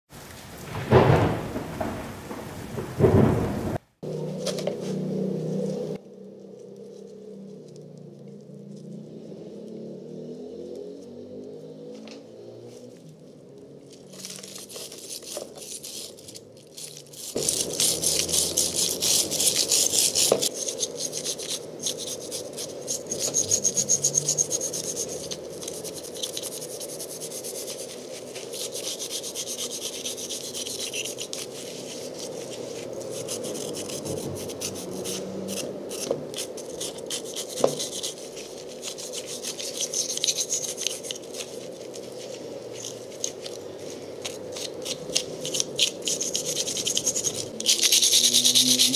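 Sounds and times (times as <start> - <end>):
file scraping rust off metal: 14.1 - 48.9.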